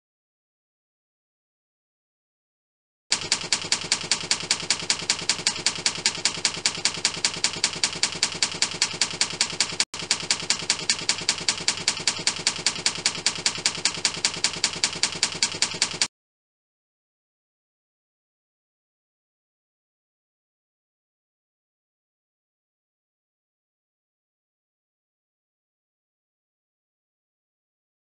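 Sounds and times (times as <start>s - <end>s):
keystroke clicks: 3.1s - 16.1s.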